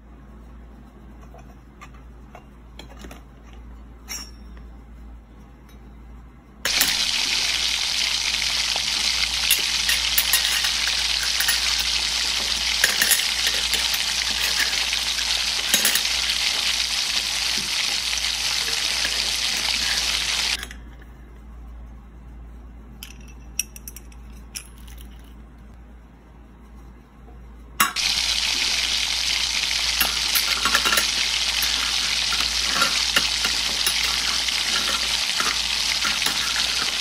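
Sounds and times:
food sizzling in pan: 6.7 - 20.6, 28.0 - 37.0
spoon stirring: 6.7 - 20.6, 27.9 - 37.0.

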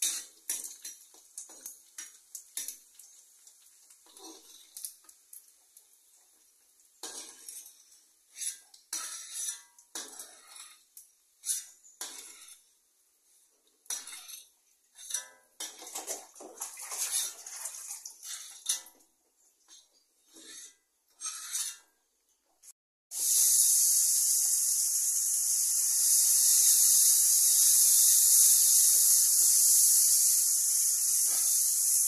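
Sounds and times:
metal spatula scraping a wok: 0.0 - 1.0, 4.0 - 4.8, 7.0 - 12.8, 13.8 - 15.9, 17.1 - 17.3, 18.2 - 18.9, 19.7 - 22.0, 31.0 - 32.0.

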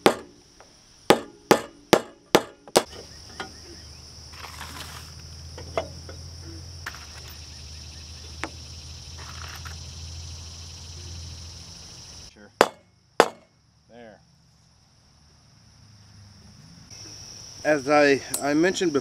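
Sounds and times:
hammer driving nails through metal: 0.0 - 0.3, 1.1 - 2.9, 12.6 - 13.5
high insect drone: 0.0 - 19.0.

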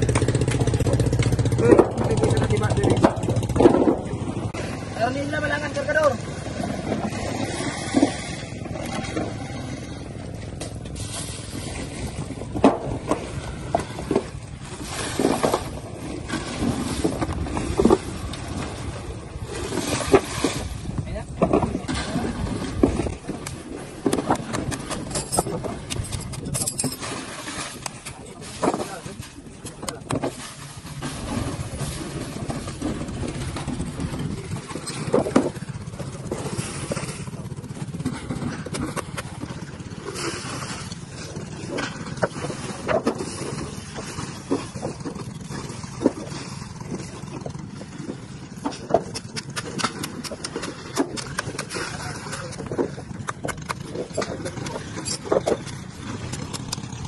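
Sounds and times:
boat engine low rumble: 0.0 - 57.0
knocks and clatter of crates: 0.1 - 4.4, 10.5 - 14.4, 34.6 - 35.9
wind buffeting the microphone: 11.5 - 26.7, 31.2 - 38.7.

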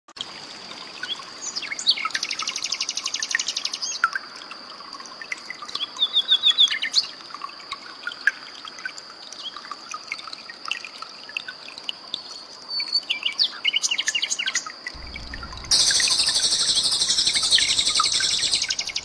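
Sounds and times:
trickling water: 0.1 - 19.0
nightingale singing: 12.8 - 19.0
steady high-pitched tone: 15.0 - 19.0.

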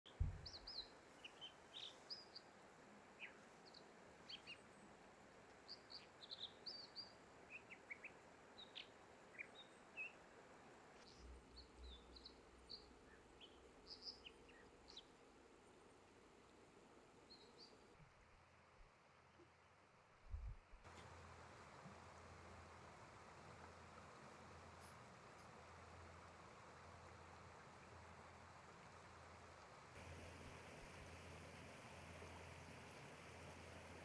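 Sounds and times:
bird singing: 0.1 - 2.5, 3.2 - 4.8, 5.6 - 10.2, 11.0 - 15.1
flowing water hiss: 0.1 - 18.0, 20.8 - 34.0.

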